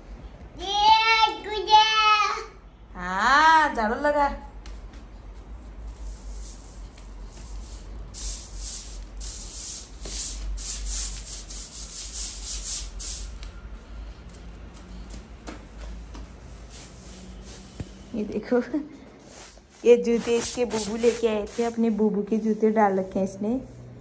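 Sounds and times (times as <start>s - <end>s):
broom sweeping plastic mat: 5.4s - 13.4s, 14.9s - 18.3s, 19.2s - 23.9s.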